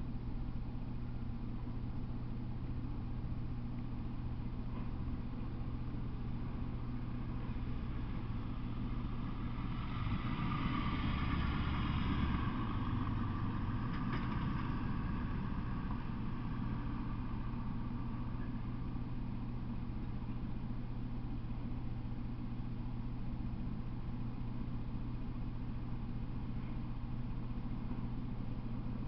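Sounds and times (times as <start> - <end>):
vehicle passing: 8.7 - 17.3.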